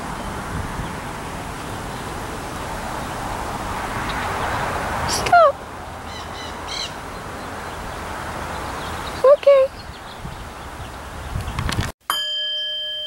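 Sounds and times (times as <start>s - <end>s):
leaves rustling in wind: 0.0s - 12.0s
high bird chirps: 6.0s - 11.7s
parakeet squawk: 6.1s - 7.0s.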